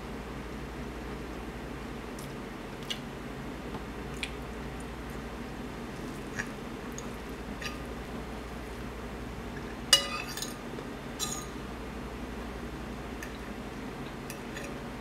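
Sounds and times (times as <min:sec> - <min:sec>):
metal fork clinking on plate: 0:09.9 - 0:10.6, 0:11.2 - 0:11.6.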